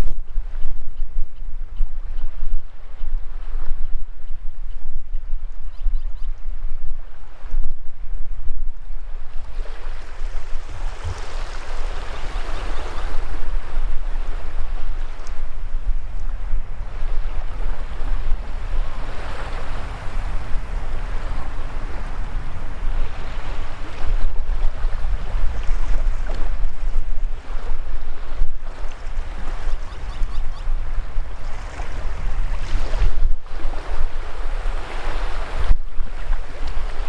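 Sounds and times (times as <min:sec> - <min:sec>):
wind on microphone: 0:00.0 - 0:37.0
small waves washing over sand: 0:09.0 - 0:37.0.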